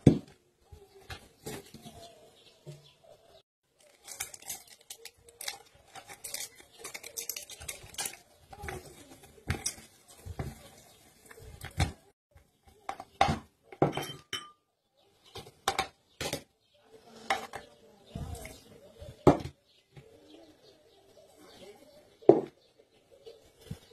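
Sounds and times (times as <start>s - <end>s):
masher squashing potatoes: 3.8s - 13.5s.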